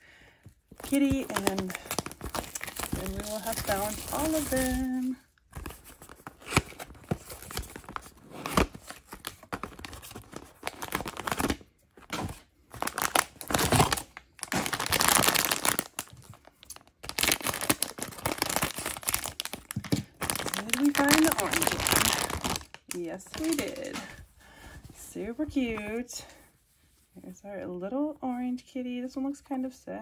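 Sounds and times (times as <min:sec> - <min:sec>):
foil bag crinkling and tearing: 0:00.8 - 0:11.7, 0:12.7 - 0:24.2.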